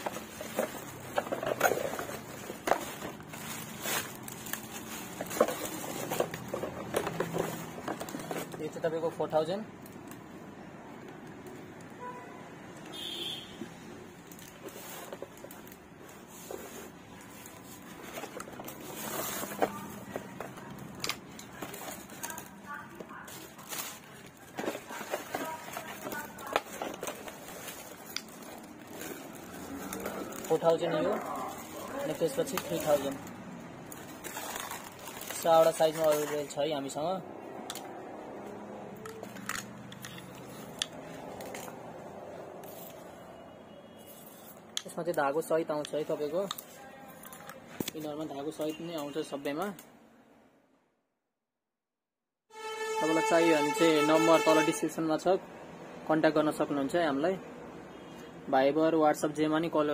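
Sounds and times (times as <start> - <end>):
packaging rustling: 0.0 - 8.9, 14.2 - 36.6.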